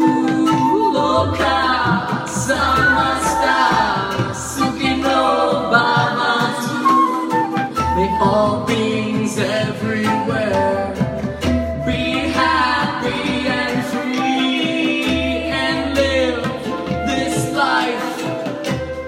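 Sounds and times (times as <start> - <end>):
voices chanting: 0.0 - 7.0, 11.8 - 18.6
acoustic guitar: 0.0 - 19.0.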